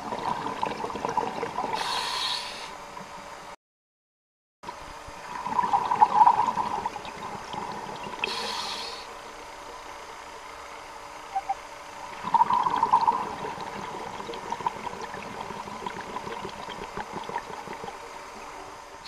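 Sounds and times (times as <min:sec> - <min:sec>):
underwater bubbles gurgling: 0:00.0 - 0:03.2, 0:05.1 - 0:10.6, 0:11.4 - 0:19.0
faint steady tone: 0:06.3 - 0:19.0.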